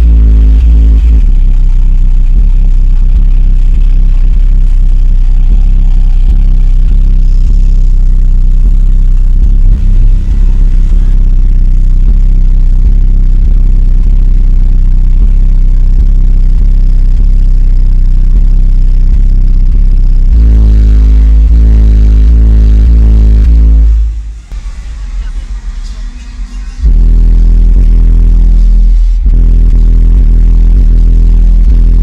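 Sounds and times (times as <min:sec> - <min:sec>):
bass-heavy music: 0:00.0 - 0:32.0
deep bass drone: 0:00.0 - 0:32.0.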